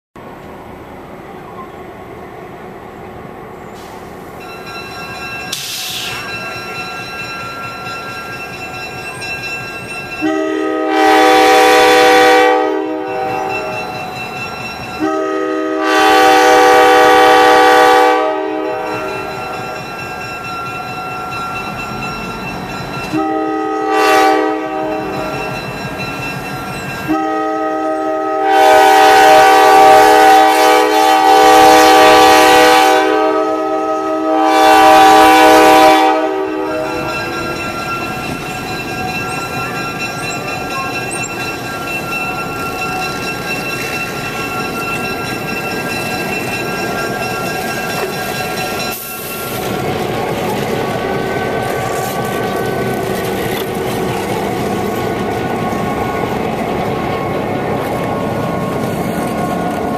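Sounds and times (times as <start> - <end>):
locomotive air horn blasts: 10.2 - 13.8, 15.0 - 19.1, 23.1 - 25.2, 27.1 - 37.2.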